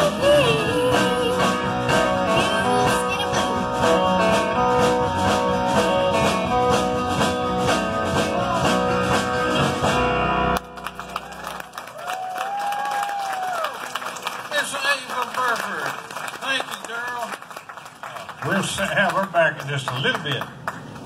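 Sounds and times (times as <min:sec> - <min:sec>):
country band playing: 0:00.0 - 0:11.9, 0:13.8 - 0:17.2.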